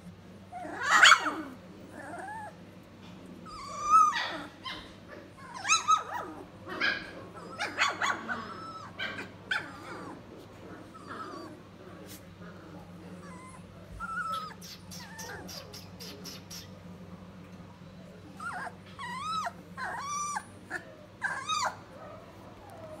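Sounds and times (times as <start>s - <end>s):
puppies whimpering: 0.4s - 2.6s, 3.3s - 11.8s, 12.8s - 16.9s, 18.0s - 23.0s.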